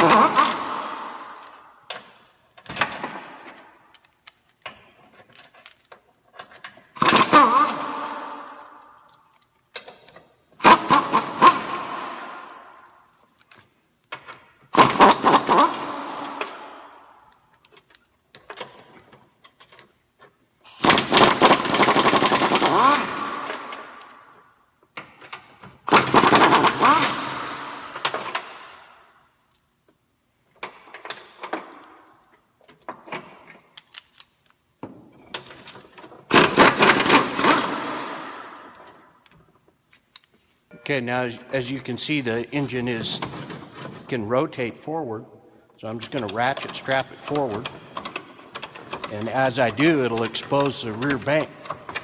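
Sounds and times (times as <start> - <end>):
pneumatic impact wrench hammering: 0.0 - 2.0, 7.0 - 8.5, 10.6 - 12.5, 14.7 - 16.8, 20.7 - 24.1, 25.9 - 28.8, 35.6 - 39.0, 46.0 - 52.0.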